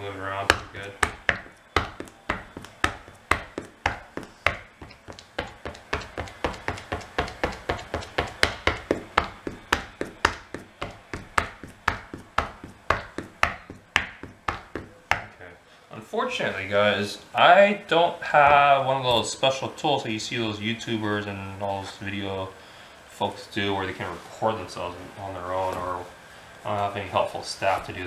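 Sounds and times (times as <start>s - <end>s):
shoe tapping on tile floor: 0.4s - 15.5s.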